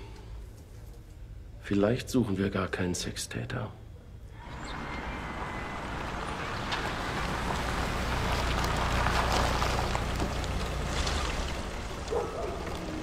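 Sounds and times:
car engine rumble: 0:04.3 - 0:13.0
tyres on muddy dirt track: 0:04.4 - 0:13.0.

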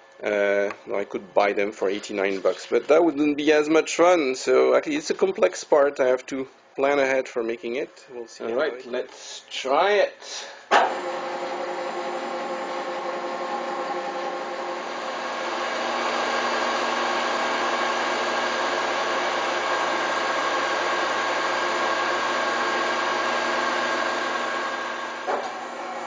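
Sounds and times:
metal lathe whining: 0:10.7 - 0:26.0.

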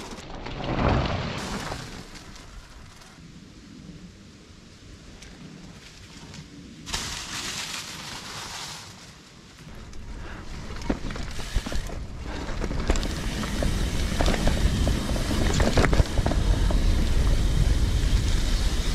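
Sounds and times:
bike rattles and clicks: 0:00.0 - 0:03.2, 0:09.6 - 0:18.9
bike tyres on dirt trail: 0:00.0 - 0:04.2, 0:04.8 - 0:18.9.

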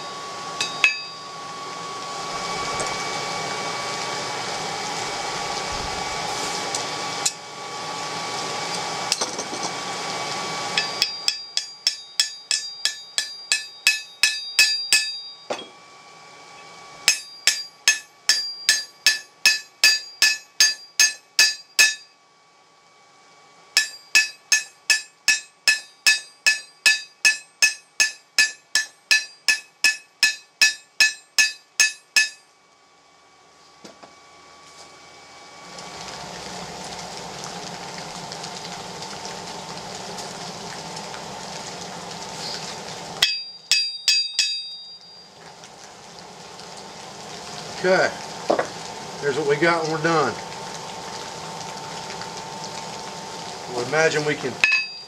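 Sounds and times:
hammer ringing on anvil: 0:00.6 - 0:01.3, 0:10.8 - 0:15.8, 0:17.1 - 0:22.1, 0:23.8 - 0:32.5, 0:43.2 - 0:45.3, 0:54.6 - 0:55.0.

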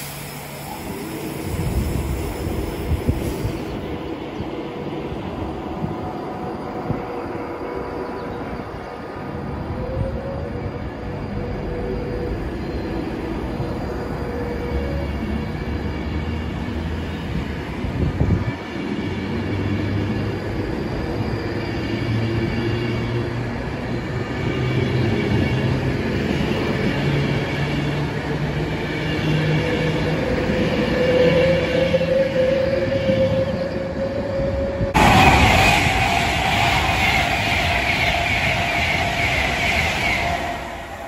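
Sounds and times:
electric train running: 0:34.8 - 0:41.0.

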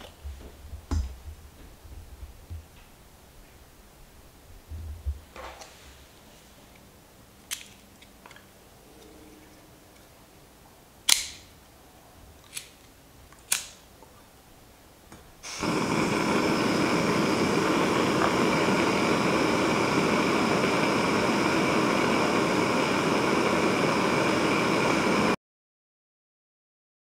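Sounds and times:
stove igniter clicks: 0:11.1 - 0:11.5, 0:13.4 - 0:13.8
gas flame hissing: 0:15.4 - 0:25.4.

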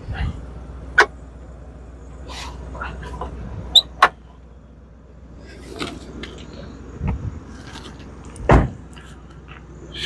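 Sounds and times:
dull thump: 0:08.4 - 0:08.8.

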